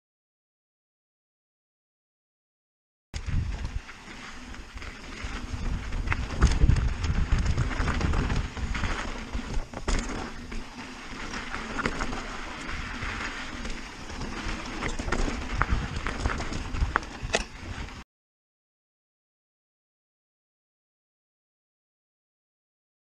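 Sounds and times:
wind buffeting microphone: 0:03.2 - 0:09.9, 0:11.1 - 0:18.0
bike rattling and clicking: 0:03.2 - 0:18.0
bike tyres crunching on gravel: 0:03.2 - 0:18.0.

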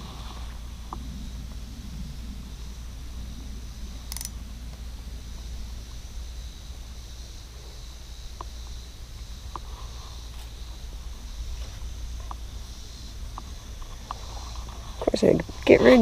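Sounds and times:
steady high-pitched hum: 0:00.0 - 0:16.0
wind rumble on microphone: 0:00.0 - 0:16.0
sharp click: 0:04.1 - 0:04.3.

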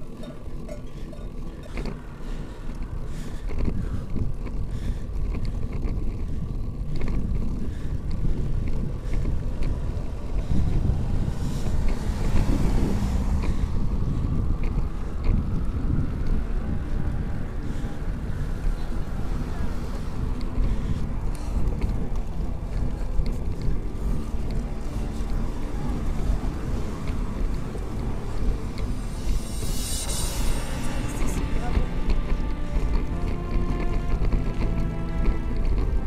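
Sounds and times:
road noise: 0:00.0 - 0:36.0
wind buffeting microphone: 0:00.0 - 0:36.0
small clicks and rattles: 0:02.7 - 0:10.5.

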